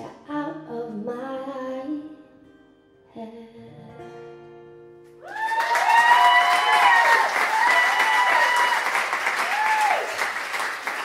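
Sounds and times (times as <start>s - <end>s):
audience clapping: 5.2s - 11.0s.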